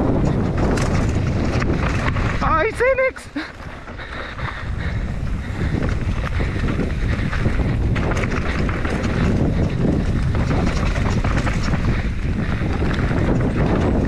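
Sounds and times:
bike rattling and knocking: 0.0 - 14.0
tyres rolling over dirt: 0.0 - 14.0
wind buffeting microphone: 0.0 - 14.0.

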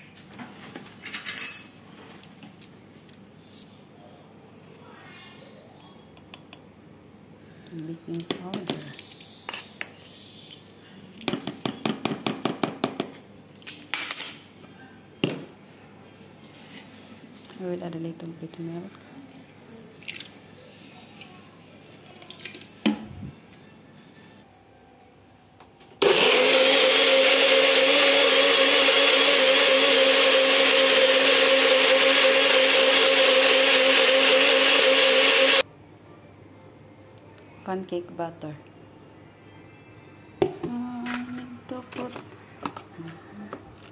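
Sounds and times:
utensils clinking against containers: 8.1 - 9.7
blender running: 26.0 - 35.6.

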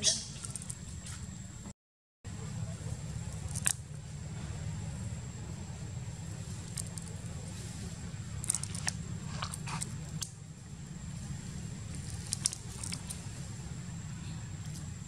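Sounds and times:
monkey crunching sugar cane: 3.2 - 3.9, 6.5 - 7.7, 8.3 - 10.4, 11.3 - 13.4.

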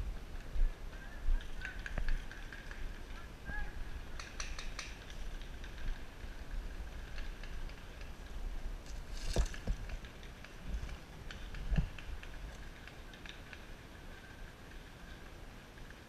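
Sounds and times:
footsteps through brush: 8.8 - 11.0.

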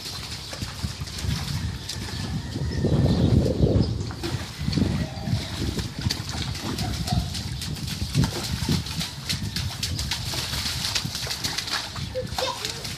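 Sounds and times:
rain boots splashing through water: 0.0 - 12.9.

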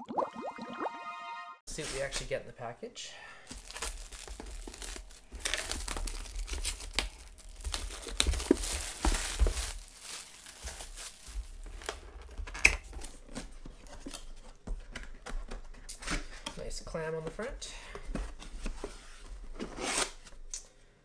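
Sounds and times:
plastic wrap tearing and crinkling: 3.5 - 13.5
plastic and cardboard rustling: 3.5 - 20.5.

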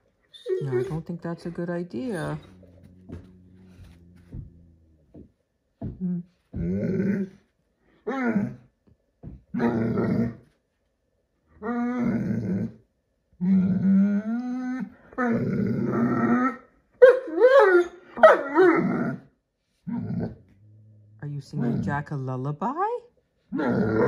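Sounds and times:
puppy whining: 0.2 - 1.2, 2.0 - 4.9
puppy growling and moaning: 0.3 - 1.2, 2.0 - 5.2, 5.9 - 8.8, 9.5 - 10.5, 11.6 - 16.7, 17.4 - 22.0, 23.5 - 24.0.

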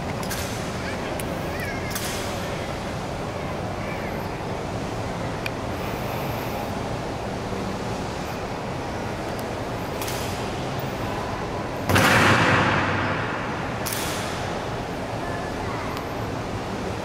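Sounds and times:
hall background noise: 0.0 - 17.0
sharp click: 13.8 - 14.3.

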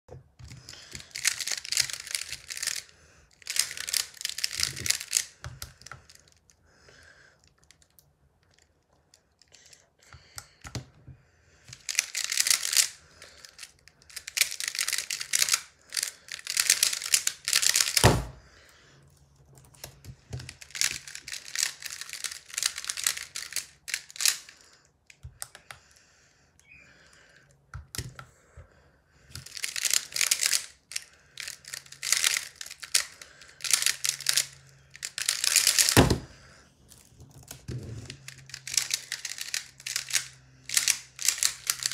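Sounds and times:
plastic puzzle clicking: 0.4 - 6.4, 11.7 - 18.0, 19.7 - 24.5, 29.3 - 36.1, 36.9 - 41.9.

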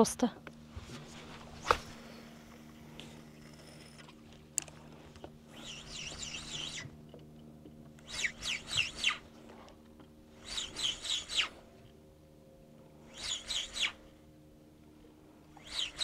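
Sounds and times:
faint steady hum: 0.0 - 16.0
bird warbling song: 5.5 - 7.0, 8.0 - 9.4, 10.4 - 11.6, 13.1 - 14.1, 15.6 - 16.0.

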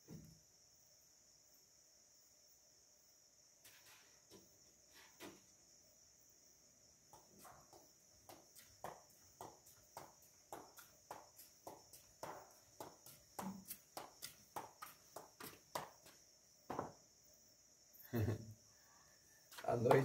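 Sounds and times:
crickets chirring: 0.0 - 20.0
footsteps on concrete: 7.1 - 17.0, 19.5 - 20.0.

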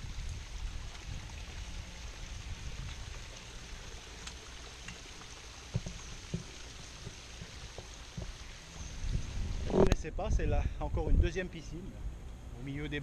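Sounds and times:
water splashing into pond: 0.0 - 10.0
soft thumps: 5.6 - 8.9.

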